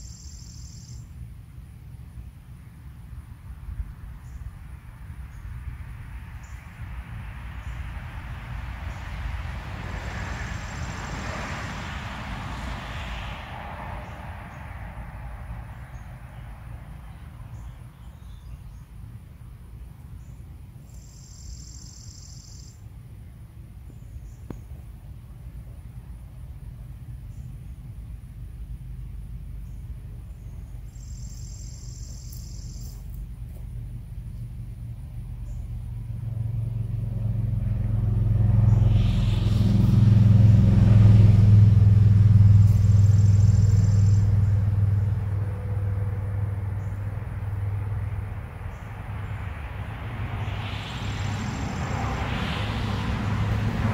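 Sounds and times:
faint bird chirps: 0.0s - 1.1s, 20.2s - 22.8s, 29.6s - 33.1s
insect trill: 0.0s - 1.2s, 20.2s - 22.8s, 29.6s - 33.2s, 42.2s - 52.3s
car passing: 0.4s - 53.9s
low rumble: 33.1s - 53.9s.

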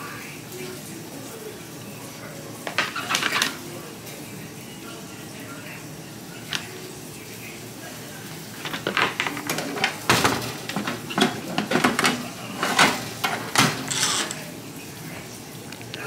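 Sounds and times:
metal kitchenware clattering: 2.6s - 3.6s, 8.5s - 14.6s
spoon scraping metal pan: 12.5s - 14.4s.

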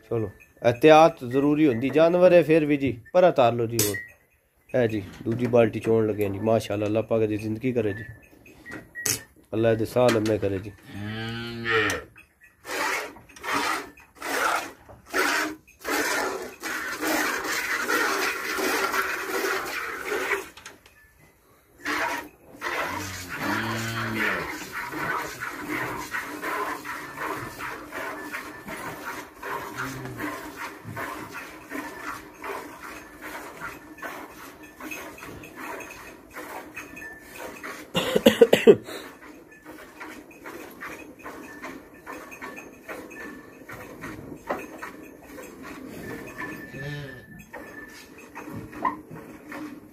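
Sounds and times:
cow mooing: 10.8s - 12.1s, 21.9s - 28.1s, 29.4s - 30.6s, 46.7s - 47.3s
milk squirting into steel bucket: 12.6s - 20.6s.

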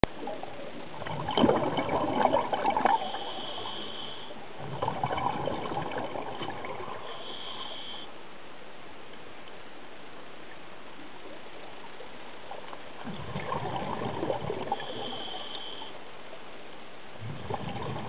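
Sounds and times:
regulator exhalation bubbles: 13.1s - 15.6s, 17.2s - 18.0s.

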